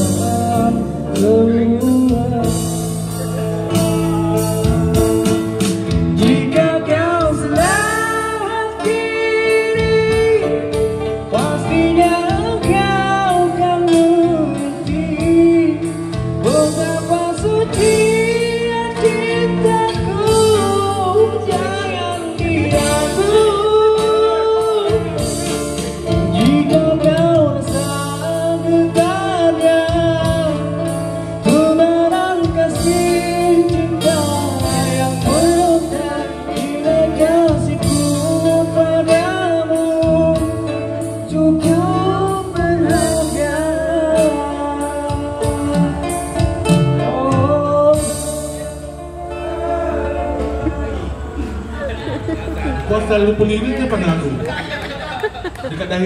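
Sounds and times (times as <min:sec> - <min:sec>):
drum kit beat: 0:00.0 - 0:40.7
man singing pop ballad: 0:00.0 - 0:51.5
electric guitar: 0:00.0 - 0:55.6.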